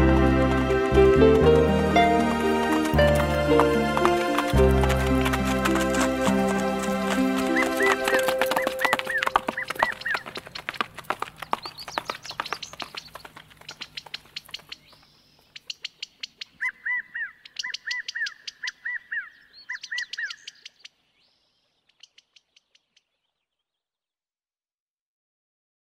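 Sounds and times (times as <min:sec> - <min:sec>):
horses trotting on dirt: 0:00.0 - 0:16.0
bird chirping: 0:01.2 - 0:23.9.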